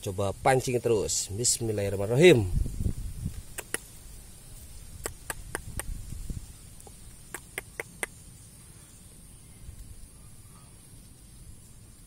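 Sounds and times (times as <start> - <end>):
sharp clicks: 3.5 - 3.9, 5.0 - 5.9, 6.8 - 8.2.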